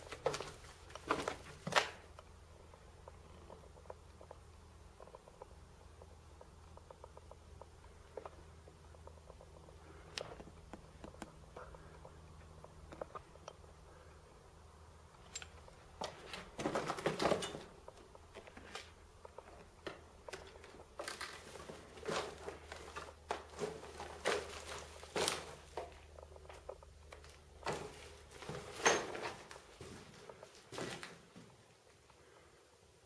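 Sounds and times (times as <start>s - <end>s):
footsteps crunching on rubble: 16.0s - 31.5s.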